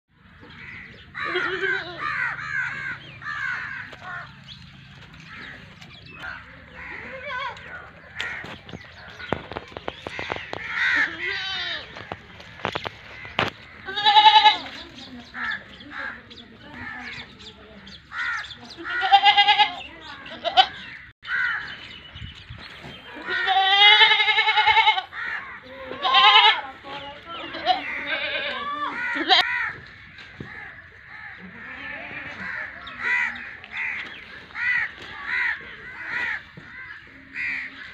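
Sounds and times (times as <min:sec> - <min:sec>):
crows cawing: 0:00.4 - 0:04.6, 0:05.2 - 0:14.6, 0:15.3 - 0:17.5, 0:18.1 - 0:21.9, 0:23.4 - 0:26.6, 0:27.6 - 0:37.9
goats bleating: 0:01.2 - 0:04.3, 0:10.6 - 0:12.2, 0:13.8 - 0:16.2, 0:18.2 - 0:20.9, 0:23.1 - 0:29.7, 0:31.2 - 0:36.8.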